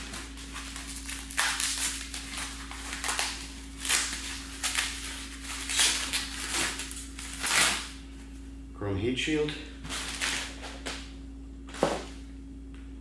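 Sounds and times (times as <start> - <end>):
packing material rustling: 0.0 - 8.0, 9.8 - 11.0
low electrical hum: 0.0 - 13.0.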